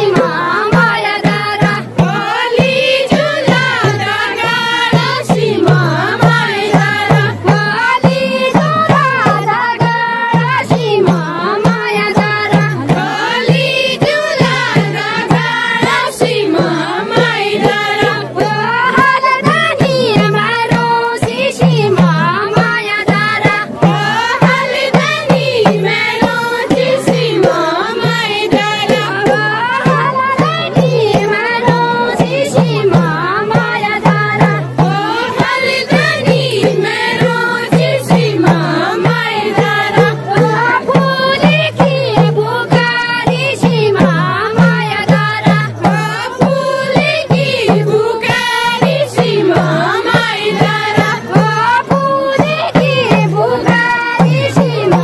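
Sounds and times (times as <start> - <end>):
steady drum beat: 0.0 - 55.0
women singing folk song: 0.0 - 55.0.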